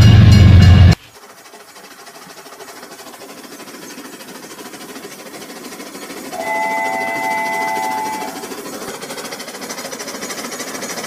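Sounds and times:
toy train motor whirring: 1.0s - 11.0s
electronic toy horn chord: 6.4s - 8.4s.

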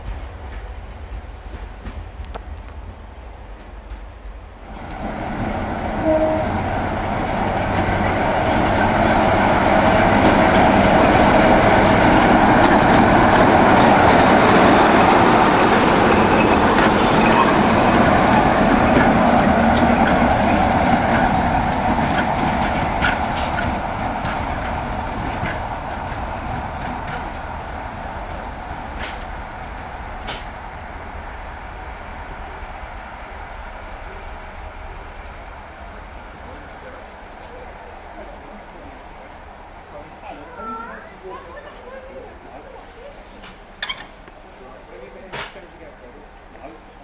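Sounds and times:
diesel locomotive engine passing: 0.0s - 47.0s.

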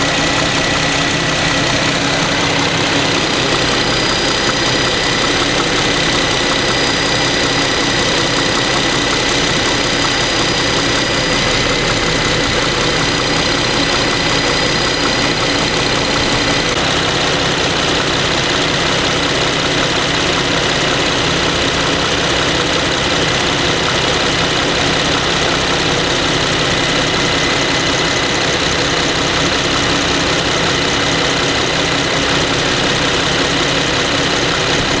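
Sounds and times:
car engine idling: 0.0s - 35.0s
engine ticking: 0.0s - 35.0s.

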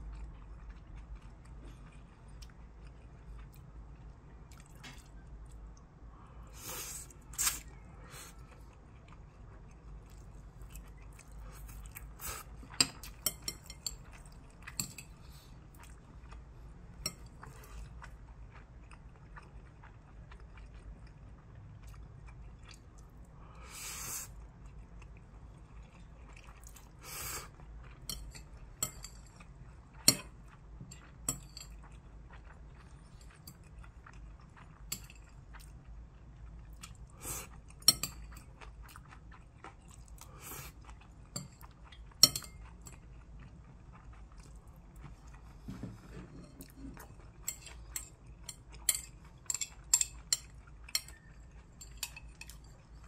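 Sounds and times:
chewing noodles: 0.0s - 5.9s, 6.6s - 23.3s, 24.2s - 53.0s
chopsticks clinking on ceramic bowl: 12.7s - 15.1s, 28.1s - 29.3s, 41.4s - 42.9s, 46.2s - 52.8s.

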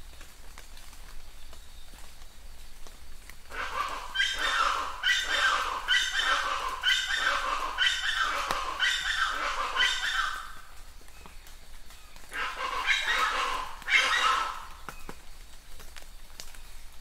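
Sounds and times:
animal calling: 3.5s - 10.7s, 12.3s - 14.9s.

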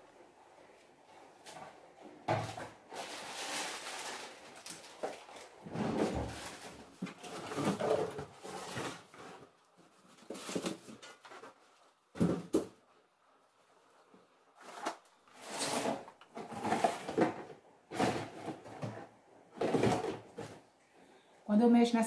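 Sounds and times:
plastic bottles clunking: 2.2s - 3.2s, 4.1s - 9.6s, 14.9s - 20.6s.

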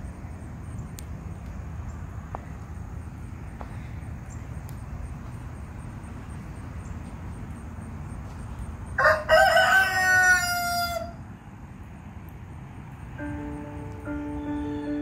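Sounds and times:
rooster crowing: 8.9s - 11.2s.

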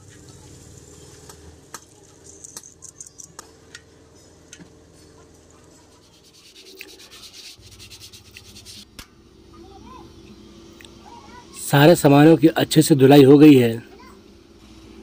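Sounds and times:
cloth scrubbing metal: 6.0s - 8.8s.

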